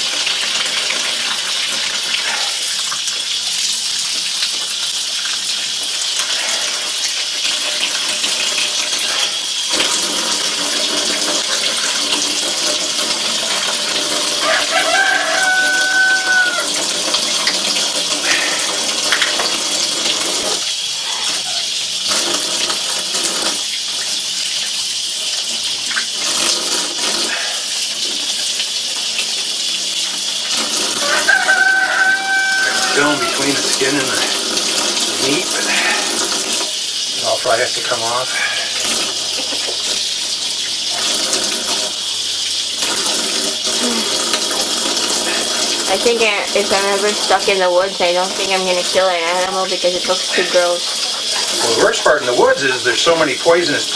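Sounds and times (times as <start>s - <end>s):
tap water running into sink: 0.0s - 53.9s
rooster crowing: 14.4s - 16.9s, 31.0s - 34.2s.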